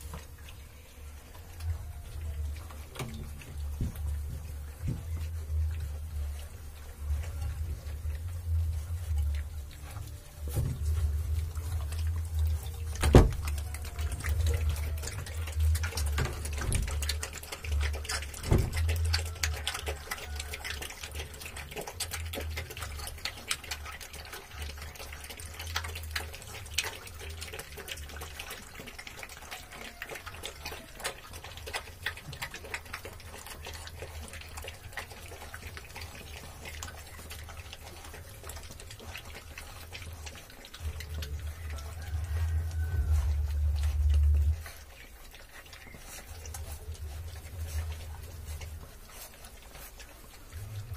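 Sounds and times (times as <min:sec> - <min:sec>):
puppies lapping from metal pan: 0:00.0 - 0:50.9
low rumble: 0:00.8 - 0:19.3, 0:40.8 - 0:45.0.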